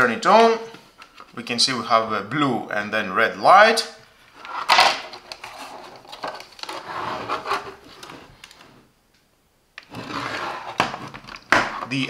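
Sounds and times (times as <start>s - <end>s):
plastic housing rubbing on wooden table: 6.7s - 8.2s, 9.9s - 11.1s.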